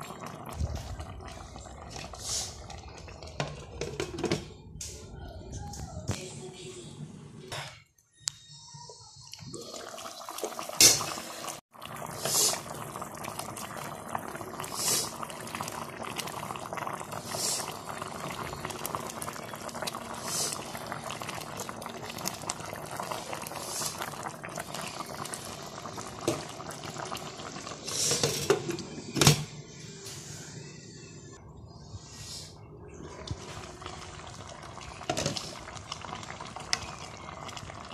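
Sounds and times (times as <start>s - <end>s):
fish curry bubbling in a pan: 9.8s - 27.8s, 33.6s - 37.9s.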